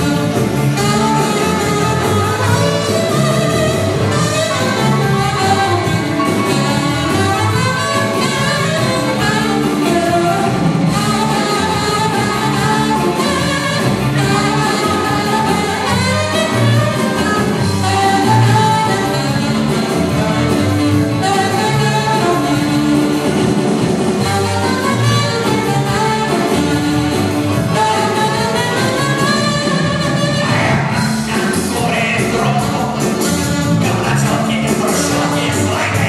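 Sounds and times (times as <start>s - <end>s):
electric bass: 0.0s - 36.0s
electric guitar: 0.0s - 36.0s
keyboard: 0.0s - 36.0s
saxophone melody: 0.0s - 36.0s.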